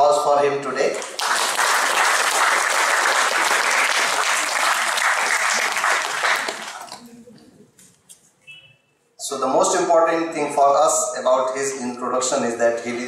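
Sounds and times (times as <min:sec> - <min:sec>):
audience applauding: 0:01.0 - 0:07.0.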